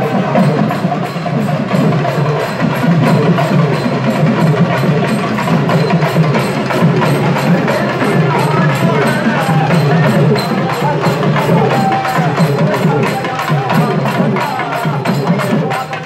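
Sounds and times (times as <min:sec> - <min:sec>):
drum ensemble fast beat: 0:00.0 - 0:16.0.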